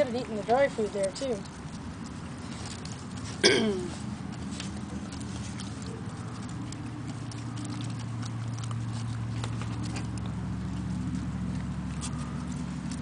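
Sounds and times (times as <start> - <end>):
light clicks and patter: 0.0 - 13.0
low steady hum: 0.0 - 13.0
puppies eating from bowls: 0.0 - 13.0.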